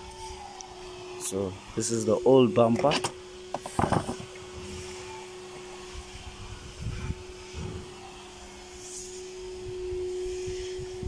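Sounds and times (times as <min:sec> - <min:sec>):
small motor humming: 0:00.0 - 0:11.0
clatter of knocks: 0:03.0 - 0:04.2.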